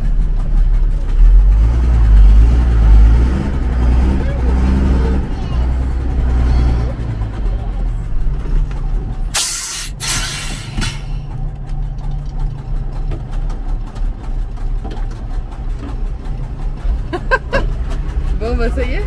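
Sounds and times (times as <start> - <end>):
diesel engine idling: 0.0 - 19.0
air hissing bursts: 9.4 - 11.1.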